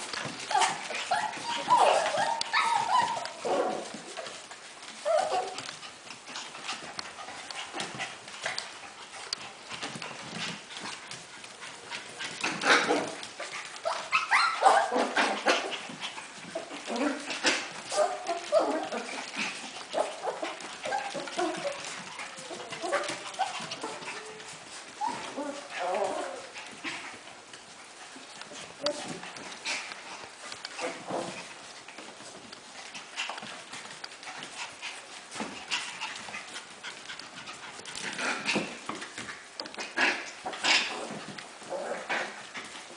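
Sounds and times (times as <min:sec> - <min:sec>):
puppies yipping and whining: 0:00.1 - 0:08.7, 0:11.8 - 0:27.1.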